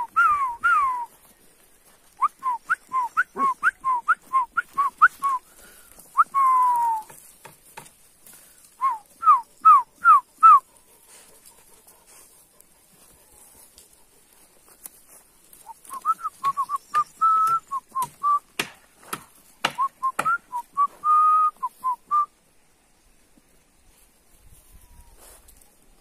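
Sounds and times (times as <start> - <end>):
person whistling: 0.0 - 1.1, 2.2 - 5.5, 6.2 - 7.1, 8.8 - 10.6, 15.6 - 18.5, 19.8 - 22.3.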